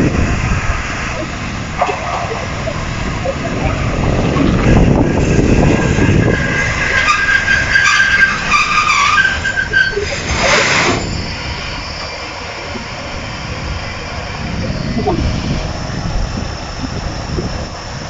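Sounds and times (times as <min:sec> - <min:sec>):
diesel engine idling: 0:00.0 - 0:18.0
diesel train rumbling: 0:00.0 - 0:18.0
high brake squeal: 0:03.4 - 0:13.0.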